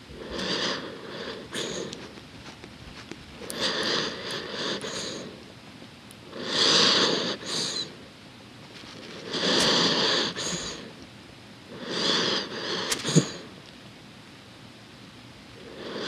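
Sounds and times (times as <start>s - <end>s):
dog breathing noisily: 0.1s - 5.4s, 6.3s - 8.0s, 9.2s - 10.9s, 11.7s - 13.5s.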